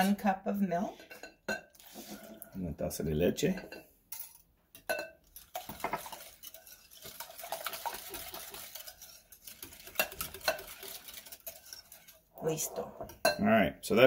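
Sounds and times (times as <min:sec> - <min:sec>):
whisk clinking in glass bowl: 0:03.6 - 0:12.2.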